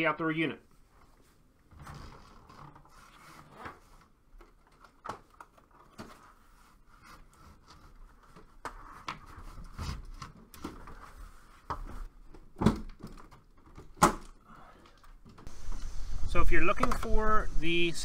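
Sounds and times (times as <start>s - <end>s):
rustles scrapes and light knocks: 0.9s - 12.2s.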